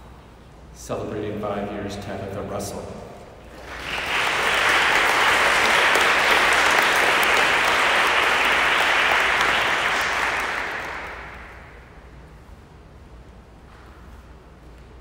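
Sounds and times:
group applauding: 0:03.4 - 0:12.0.

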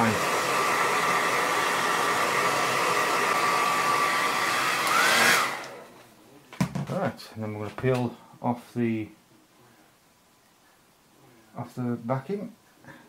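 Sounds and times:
hairdryer blowing: 0:00.0 - 0:05.9.

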